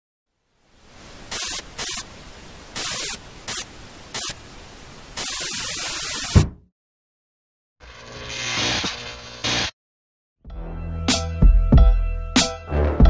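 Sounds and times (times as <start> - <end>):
television static hiss: 0.3 - 6.4
fist thumping tv set: 6.4 - 6.7.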